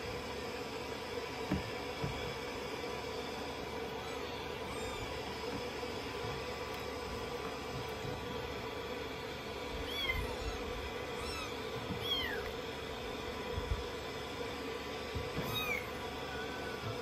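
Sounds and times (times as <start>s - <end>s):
steady background hum: 0.0s - 17.0s
kitten meowing: 4.0s - 5.2s, 9.8s - 12.6s, 15.4s - 16.6s.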